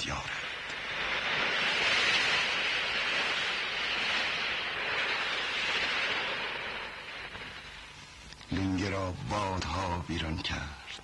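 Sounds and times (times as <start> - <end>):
sea surf rushing: 0.0 - 8.3.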